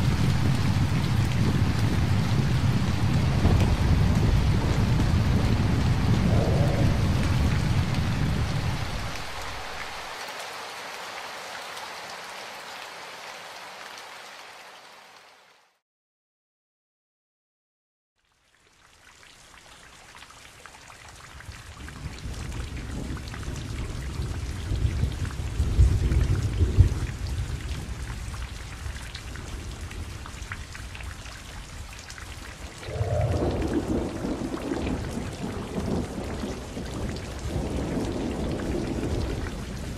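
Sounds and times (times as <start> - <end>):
thunder rumbling: 0.0 - 10.0, 32.7 - 39.9
rain falling: 0.0 - 15.8, 18.2 - 39.9.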